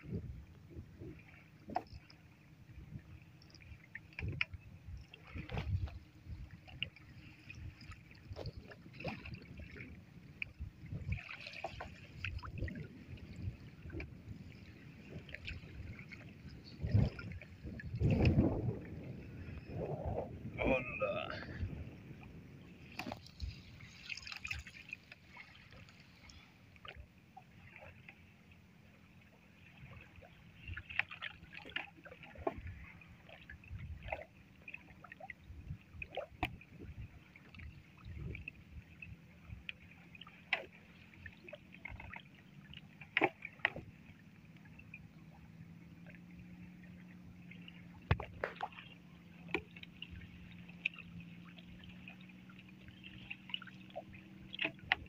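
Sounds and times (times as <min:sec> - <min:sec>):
knocks against a wooden hull: 0:36.4 - 0:36.6, 0:48.0 - 0:48.8.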